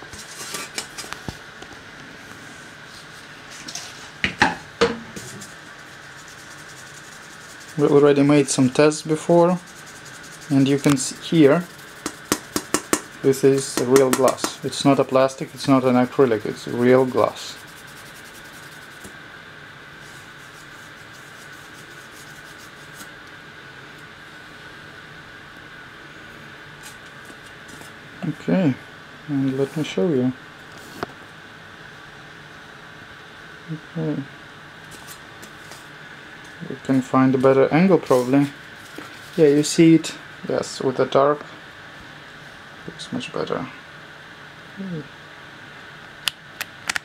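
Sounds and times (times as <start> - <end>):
steady hiss: 0.0 - 46.3
faint high hum: 0.0 - 47.0
rubbing strokes on glass: 5.2 - 12.8, 13.5 - 19.1, 20.0 - 23.1.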